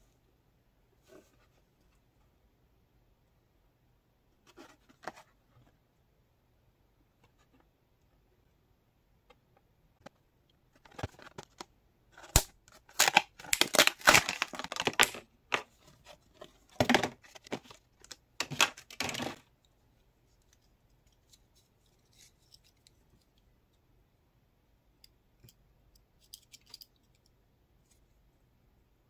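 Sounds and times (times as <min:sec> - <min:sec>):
plastic packaging tearing and crinkling: 0:12.2 - 0:15.2.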